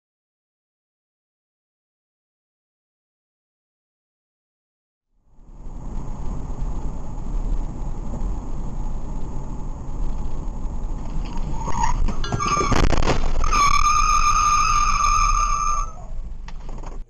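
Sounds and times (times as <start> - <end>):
car road and engine rumble: 5.2 - 17.0
squeal: 11.5 - 16.1.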